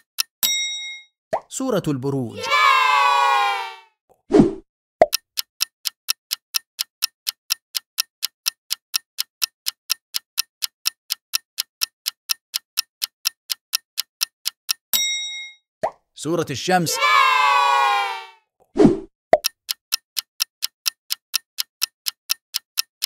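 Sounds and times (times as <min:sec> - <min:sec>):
timer ticking: 0:00.0 - 0:01.1, 0:05.0 - 0:16.7, 0:19.3 - 0:23.0.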